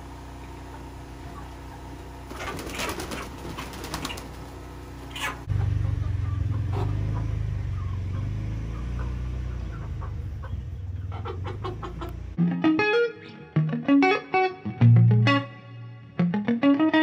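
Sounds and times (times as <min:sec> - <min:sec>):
chickens clucking: 0:00.3 - 0:12.4.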